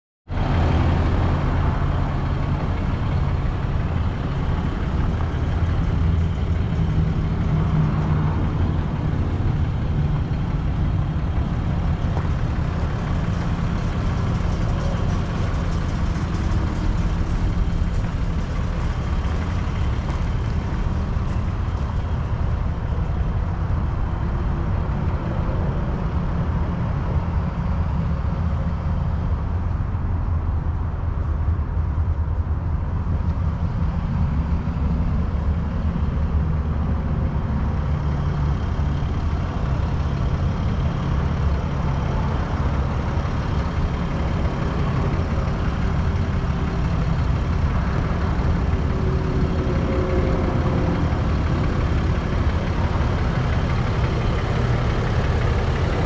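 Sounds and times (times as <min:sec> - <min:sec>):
diesel truck engine idling: 0:00.3 - 0:56.0.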